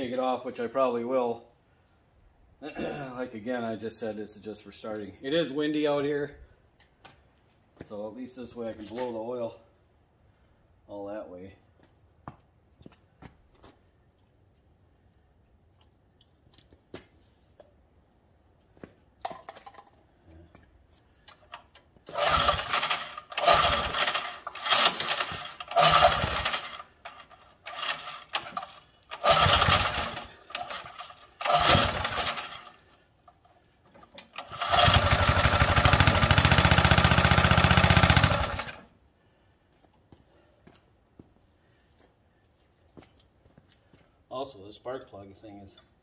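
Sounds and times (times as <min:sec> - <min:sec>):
small engine sputtering: 0:22.1 - 0:32.8, 0:34.4 - 0:38.8.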